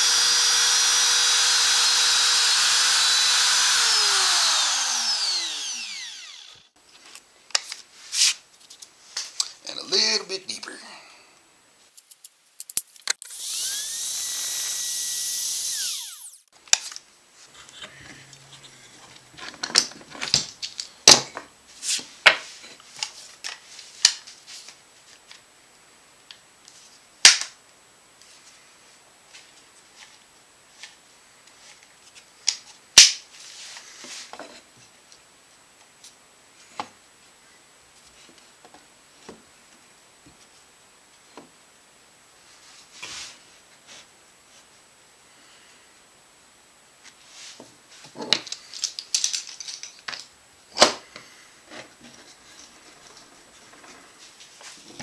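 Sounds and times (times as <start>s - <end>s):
router motor winding down: 0.0s - 6.8s, 13.2s - 16.5s.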